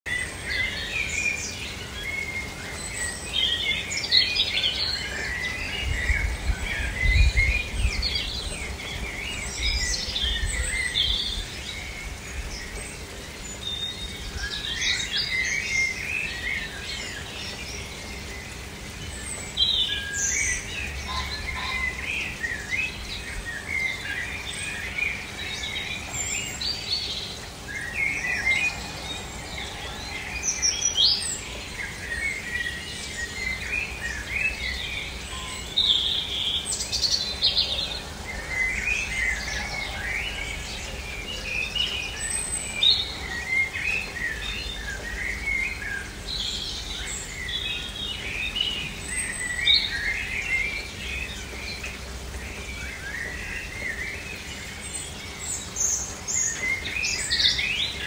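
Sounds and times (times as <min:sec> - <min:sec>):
songbirds chirping and trilling: 0:00.0 - 0:58.0.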